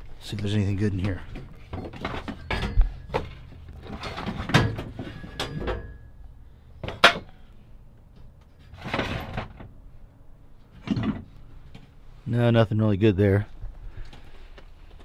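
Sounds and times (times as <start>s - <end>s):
metal clank: 1.3s - 6.2s, 6.8s - 7.5s
metal scrap clinking: 1.4s - 6.1s.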